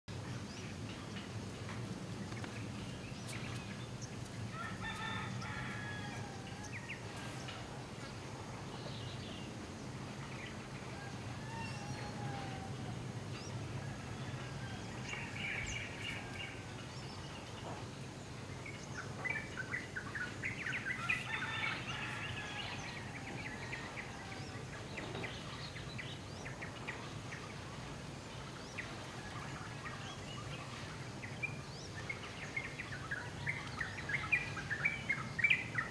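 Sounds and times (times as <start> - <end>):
chickens and rooster calling: 4.4 - 7.8, 10.8 - 16.8, 20.7 - 24.6.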